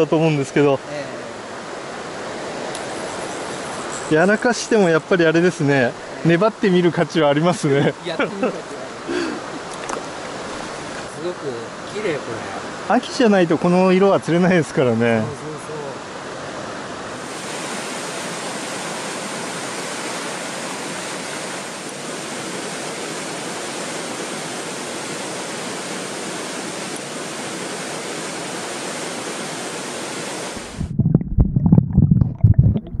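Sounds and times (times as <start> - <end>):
stream rushing over rocks: 0.0 - 31.0
underwater gurgling and knocking: 30.7 - 33.0.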